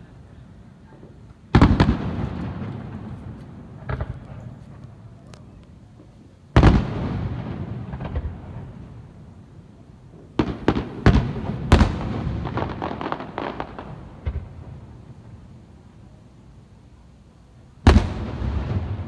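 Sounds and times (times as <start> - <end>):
firework bangs: 1.0 - 5.2, 6.0 - 9.2, 10.2 - 15.5, 17.8 - 19.0
firework booms: 1.0 - 5.2, 6.0 - 9.3, 10.1 - 15.5, 17.8 - 19.0
firework crackling pops: 1.0 - 9.2, 10.1 - 15.5, 17.8 - 19.0.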